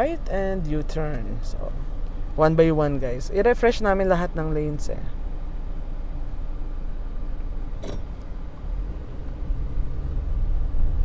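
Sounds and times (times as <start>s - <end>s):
engine hum: 0.0s - 11.0s
tyre and road rumble: 6.4s - 11.0s.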